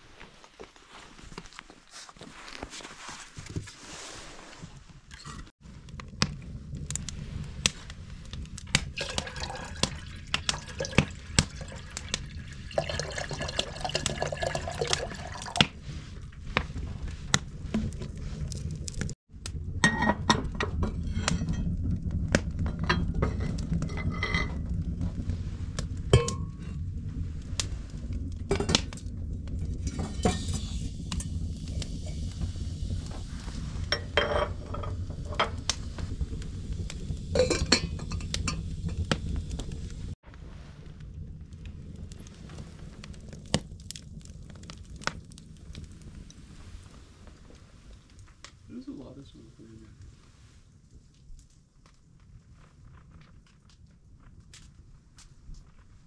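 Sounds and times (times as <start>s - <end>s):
steady low rumble: 5.6s - 12.8s, 15.8s - 51.4s.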